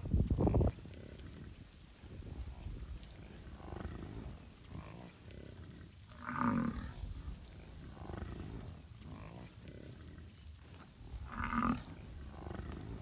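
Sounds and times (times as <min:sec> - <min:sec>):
bison grunting: 0:07.8 - 0:13.0.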